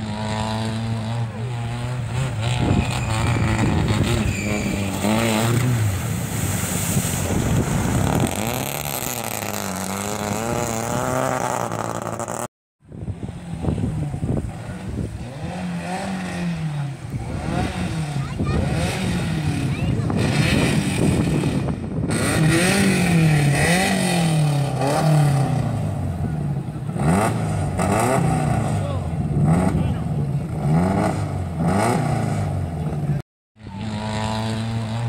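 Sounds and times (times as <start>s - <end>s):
rally car engines revving: 0.0s - 35.0s
water splashing: 1.7s - 12.1s.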